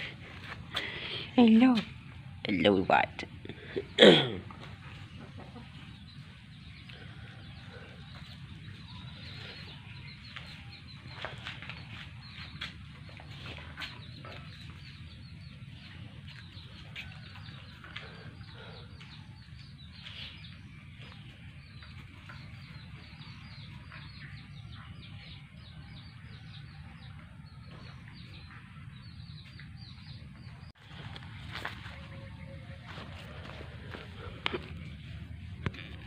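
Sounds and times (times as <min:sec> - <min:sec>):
birds chirping: 0:00.0 - 0:36.0
steady low rumble: 0:27.0 - 0:36.0.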